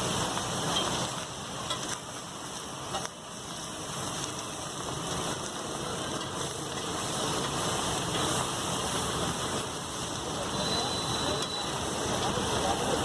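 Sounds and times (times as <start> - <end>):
frying hiss: 0.0 - 13.0
metal spatulas scraping on griddle: 0.7 - 2.0, 10.4 - 13.0.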